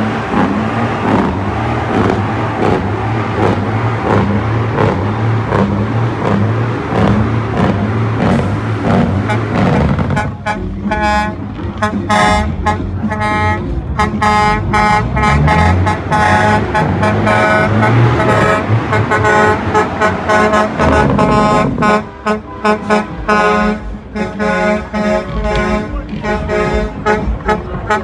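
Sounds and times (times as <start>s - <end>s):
heavy truck engine running: 0.0s - 28.0s
truck air horn blasts: 8.3s - 28.0s.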